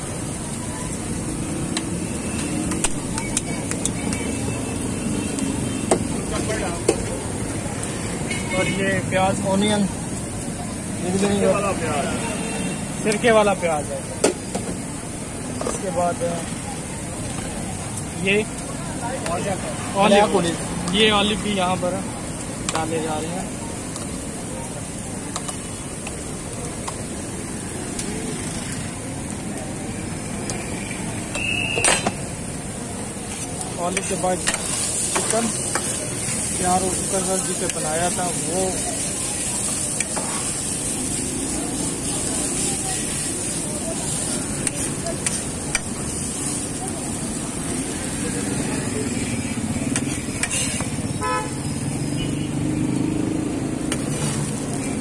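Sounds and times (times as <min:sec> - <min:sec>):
street traffic rumble: 0:00.0 - 0:55.0
faint voices: 0:21.9 - 0:51.2
car horn toot: 0:51.2 - 0:51.6.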